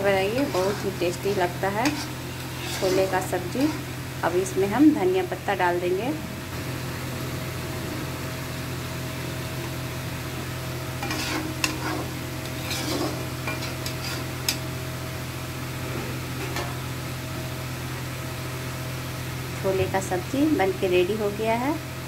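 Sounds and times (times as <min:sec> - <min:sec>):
metal spatula scraping pan: 0:00.0 - 0:04.0, 0:11.0 - 0:14.6
steady low hum: 0:00.0 - 0:22.0.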